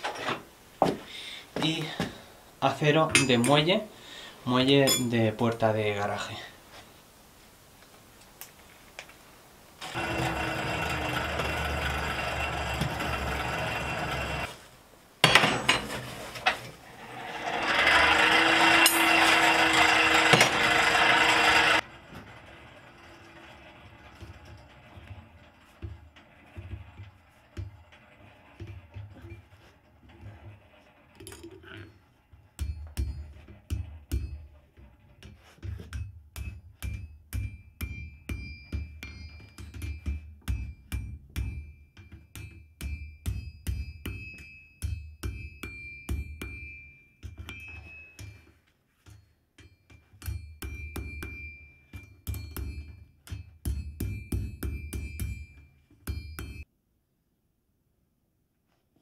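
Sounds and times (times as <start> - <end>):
hammer ringing on anvil: 4.9 - 5.1, 36.5 - 48.5, 49.6 - 56.6.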